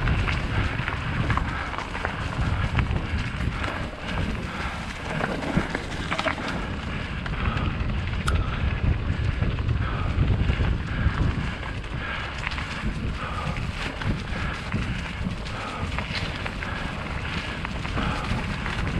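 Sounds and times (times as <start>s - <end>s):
tyres crunching on dirt: 0.0s - 7.1s
bike clicks and rattles: 0.0s - 18.9s
wind rumbling on microphone: 0.0s - 18.9s.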